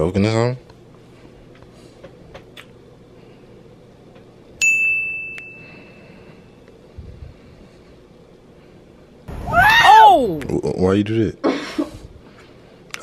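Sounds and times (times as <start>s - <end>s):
bright bell ding: 4.6s - 6.0s.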